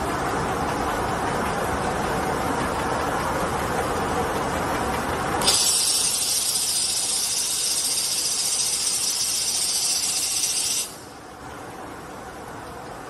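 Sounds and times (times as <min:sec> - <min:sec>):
quiet even machine noise: 0:00.0 - 0:13.0
loud machine hiss: 0:05.4 - 0:11.1.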